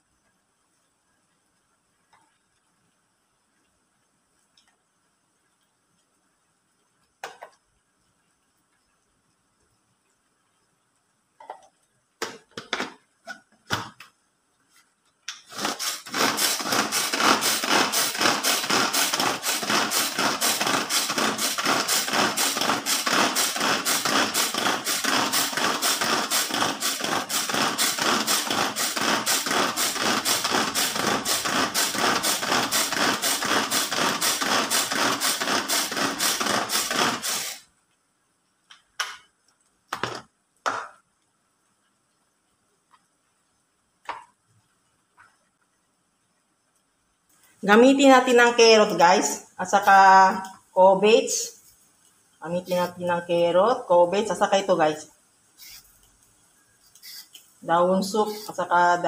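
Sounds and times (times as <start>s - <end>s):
food chopper blades rattling: 15.5s - 37.6s.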